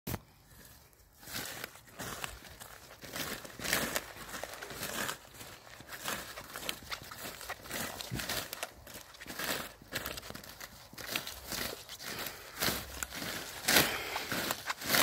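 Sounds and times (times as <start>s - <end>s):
feet crushing flowers: 0.1s - 15.0s
stalks snapping: 6.0s - 15.0s.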